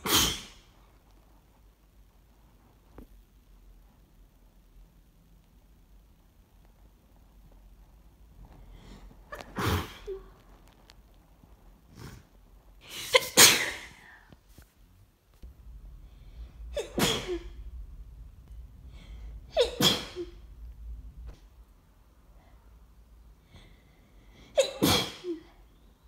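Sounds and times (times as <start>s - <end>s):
person sneezing: 0.0s - 0.7s, 9.3s - 10.3s, 12.8s - 14.2s, 16.7s - 17.6s, 19.5s - 20.4s, 24.5s - 25.6s.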